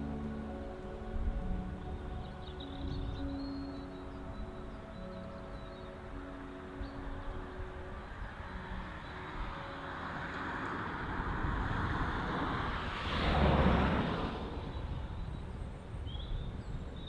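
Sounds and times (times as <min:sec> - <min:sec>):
faint background music: 0:00.0 - 0:17.0
car driving past: 0:08.5 - 0:15.4.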